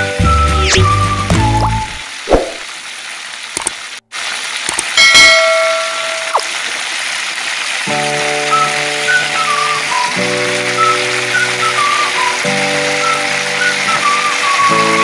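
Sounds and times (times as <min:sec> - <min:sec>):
hot oil sizzling: 0:00.0 - 0:15.0
metallic ding: 0:05.0 - 0:06.4.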